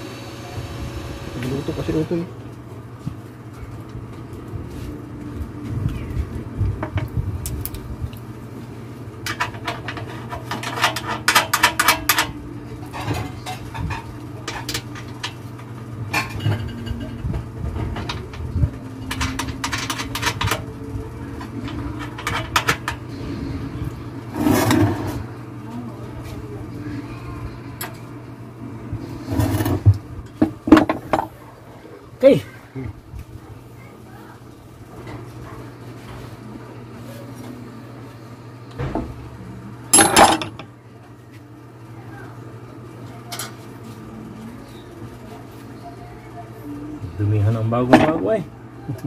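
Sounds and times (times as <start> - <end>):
low hum: 3.5 - 33.6
metal tools clicking and rattling: 19.0 - 20.6, 21.7 - 23.0, 40.0 - 40.6.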